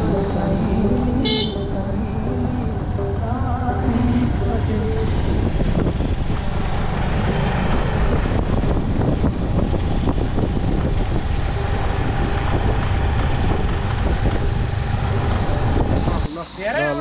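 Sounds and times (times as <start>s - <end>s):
motorbike engine: 0.0s - 16.2s
wind buffeting microphone: 2.7s - 16.3s.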